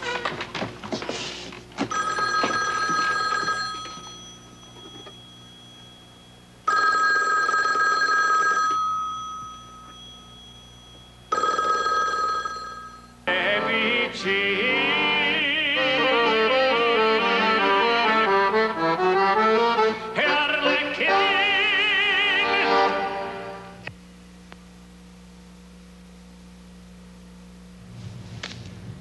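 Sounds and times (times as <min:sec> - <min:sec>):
desk telephone ringing: 0:01.8 - 0:13.1
accordion music: 0:13.3 - 0:23.8.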